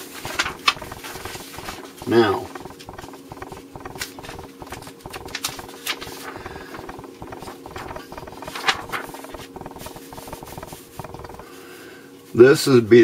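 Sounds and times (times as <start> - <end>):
faint steady hum: 0.0 - 13.0
paper rustling and sliding: 0.2 - 1.8, 5.4 - 11.0
sharp taps: 0.2 - 11.4.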